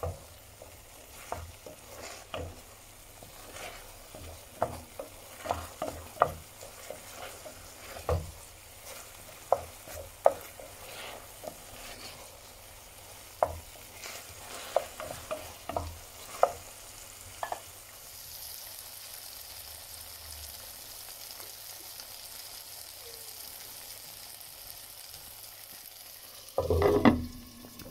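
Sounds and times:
utensil scraping and knocking a pan: 0:00.0 - 0:12.5, 0:13.2 - 0:16.7, 0:26.6 - 0:27.9
mushrooms sizzling in oil: 0:00.0 - 0:27.9.

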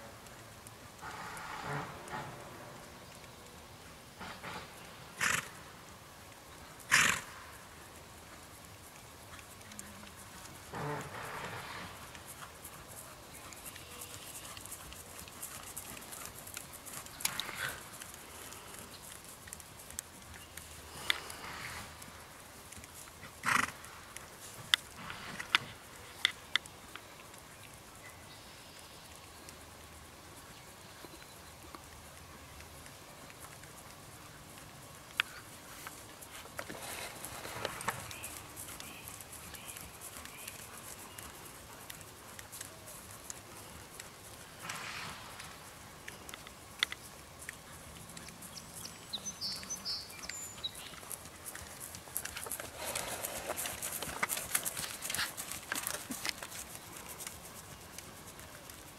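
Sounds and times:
hooves trotting on grass: 0:00.0 - 0:58.9
horse snorting: 0:01.0 - 0:02.6, 0:04.2 - 0:05.6, 0:06.9 - 0:07.4, 0:10.6 - 0:12.6, 0:14.4 - 0:18.0, 0:23.4 - 0:23.8, 0:44.6 - 0:45.6, 0:52.4 - 0:56.2
bird chirping: 0:48.2 - 0:51.2.

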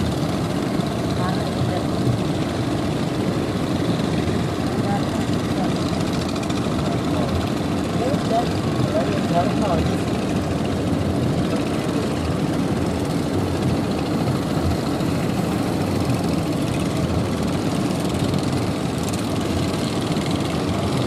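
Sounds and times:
boat engine running: 0:00.0 - 0:21.0.

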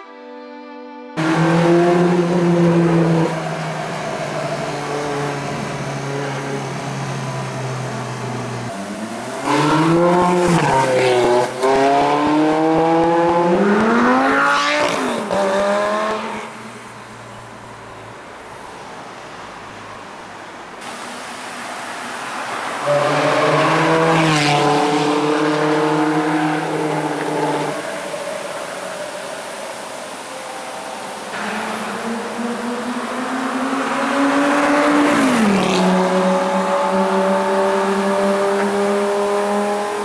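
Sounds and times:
road noise: 0:00.0 - 0:40.0
sports car engines revving: 0:01.2 - 0:18.1, 0:20.8 - 0:40.0.

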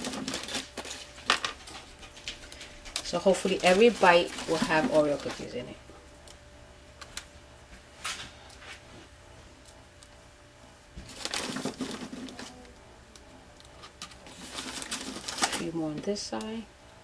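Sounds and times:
plastic bag crinkling: 0:00.0 - 0:05.8, 0:11.0 - 0:12.7, 0:13.6 - 0:15.9.

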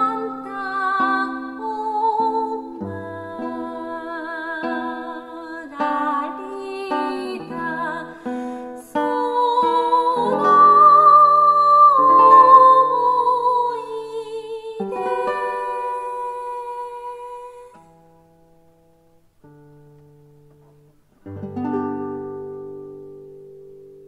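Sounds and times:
person singing with vibrato: 0:00.0 - 0:18.0
plucked guitar: 0:00.0 - 0:24.0.

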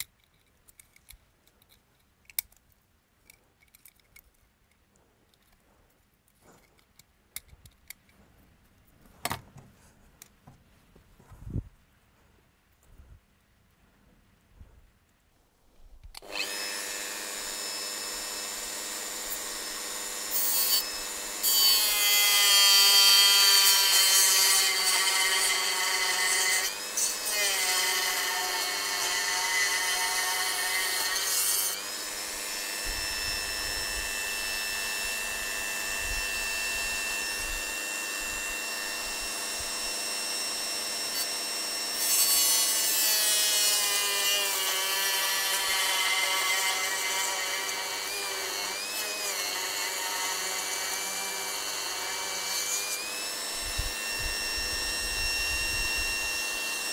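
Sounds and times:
rotary tool cutting plastic: 0:16.1 - 0:56.9.

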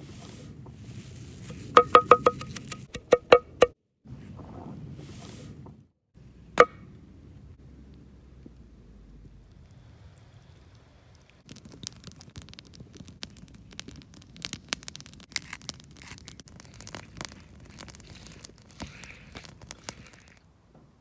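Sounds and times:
pestle crushing in wooden mortar: 0:01.6 - 0:03.8, 0:11.4 - 0:20.4
pepper mill grinding: 0:15.2 - 0:20.4.

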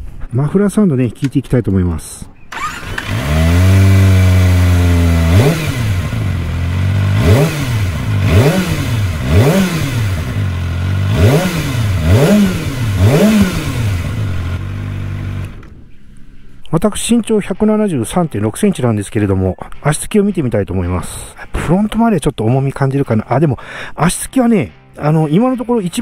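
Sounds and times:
motorcycle engine idling and revving: 0:02.5 - 0:16.0.

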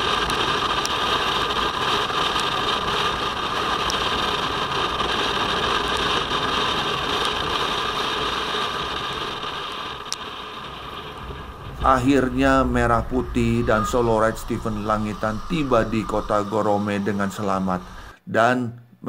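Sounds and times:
tyre hiss on wet road: 0:00.0 - 0:18.2
wind rush: 0:00.0 - 0:18.2
motorcycle engine hum: 0:10.3 - 0:18.1.

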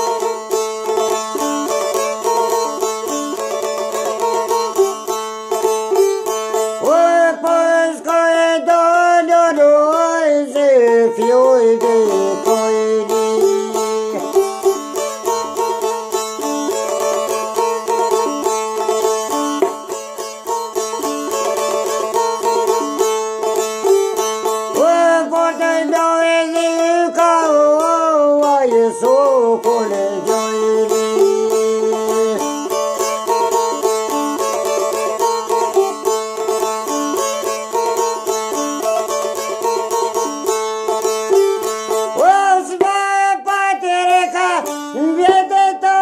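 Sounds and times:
plucked long-necked lute: 0:00.0 - 0:46.0
man singing: 0:06.3 - 0:20.2, 0:21.0 - 0:40.3, 0:40.9 - 0:46.0.

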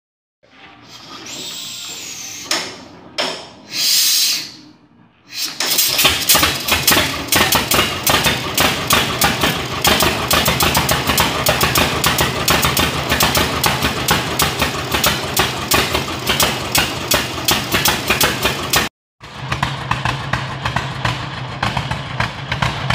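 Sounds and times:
short hiss: 0:03.7 - 0:04.6, 0:05.3 - 0:06.0
engine running with steady popping: 0:05.5 - 0:22.9
engine knocks while hand-starting: 0:05.7 - 0:22.9.

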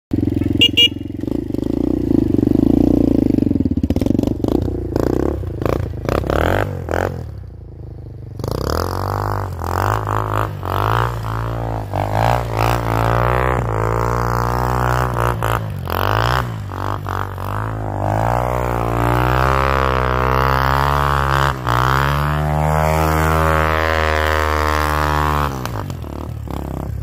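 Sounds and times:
motorcycle engine revving: 0:00.1 - 0:27.0.

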